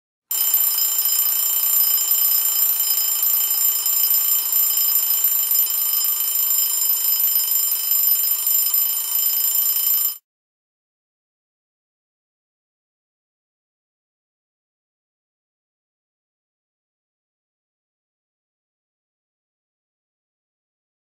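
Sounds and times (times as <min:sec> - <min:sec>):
alarm clock ringing: 0:00.3 - 0:10.2.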